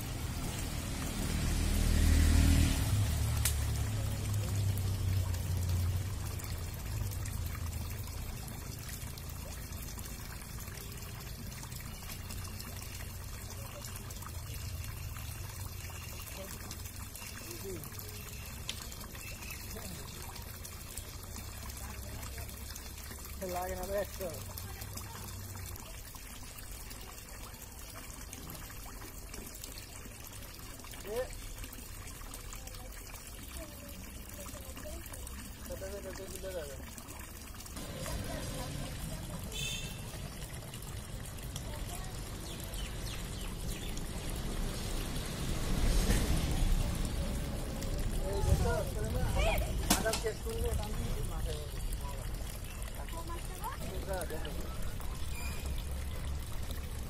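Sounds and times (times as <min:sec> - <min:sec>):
water trickling: 0:00.0 - 0:57.0.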